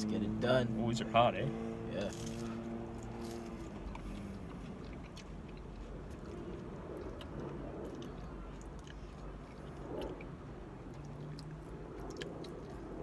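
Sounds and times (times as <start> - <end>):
people chewing: 2.0 - 13.0
small mouth clicks: 3.9 - 13.0.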